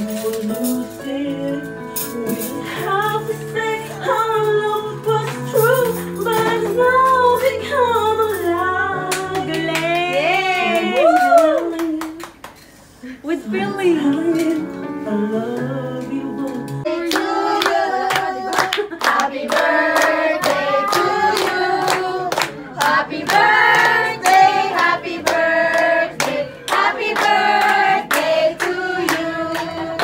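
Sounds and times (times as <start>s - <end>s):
hands clapping: 9.1s - 12.7s, 17.0s - 29.8s
person singing: 13.6s - 30.0s.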